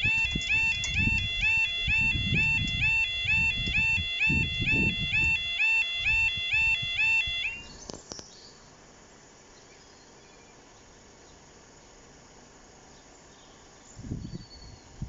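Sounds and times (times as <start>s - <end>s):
level crossing alarm tone: 0.0s - 7.7s.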